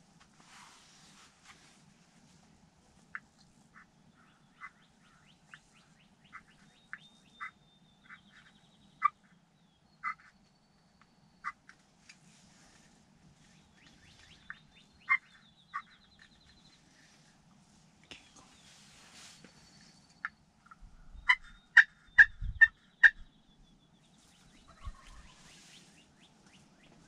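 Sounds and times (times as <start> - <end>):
turkey clucking: 3.8 - 9.3, 14.1 - 16.4, 20.2 - 23.2, 24.5 - 25.8.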